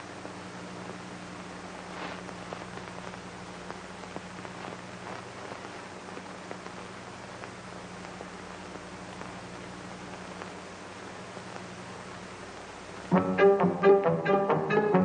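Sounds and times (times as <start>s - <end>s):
faint crackles: 0.0s - 13.1s
film soundtrack hiss: 0.0s - 15.0s
low constant hum: 0.0s - 15.0s.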